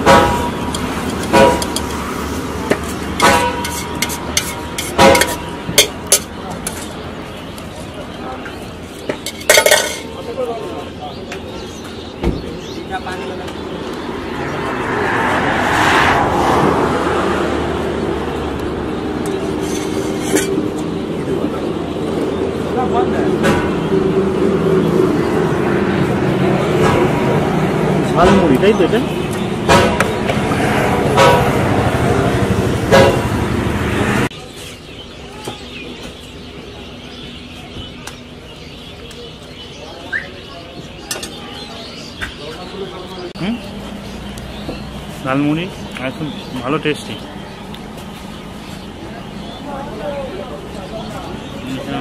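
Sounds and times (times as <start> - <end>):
vehicle passing: 0.0 - 5.7, 13.2 - 34.3
engine hum: 0.0 - 11.1, 11.8 - 34.4
loud dense street noise: 0.0 - 52.0
road traffic: 0.0 - 52.0.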